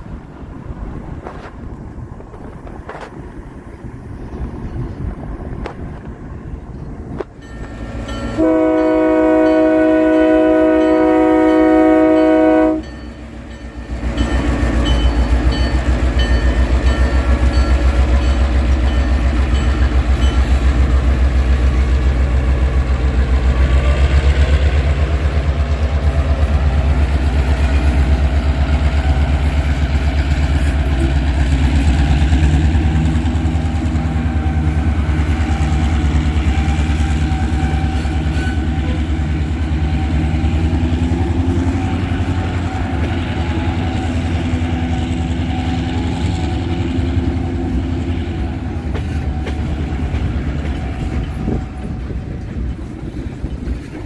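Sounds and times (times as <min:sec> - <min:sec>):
diesel locomotive engine throbbing: 0:00.0 - 0:54.0
locomotive chime horn blast: 0:07.4 - 0:20.7, 0:36.4 - 0:40.4.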